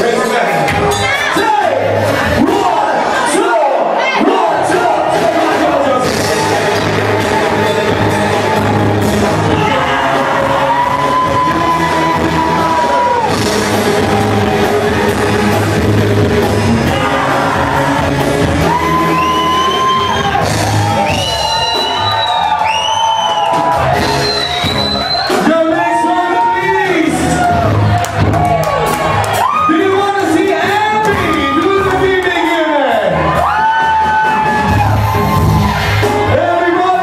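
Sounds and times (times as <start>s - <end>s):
crowd whooping and shouting: 0.0s - 37.0s
singer holding long notes: 4.9s - 21.1s
live rock band playing: 5.1s - 37.0s.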